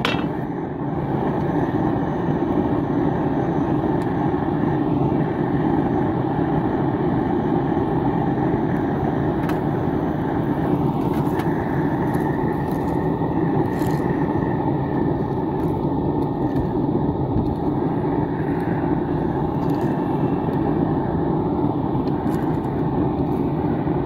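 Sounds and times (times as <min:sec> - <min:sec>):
blower rushing drone: 0:00.0 - 0:24.0.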